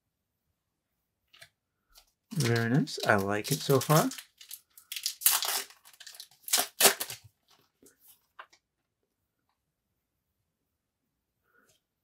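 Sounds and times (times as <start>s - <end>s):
faint wrapper rustles: 1.3s - 8.6s
foil wrapper tearing: 2.3s - 7.3s.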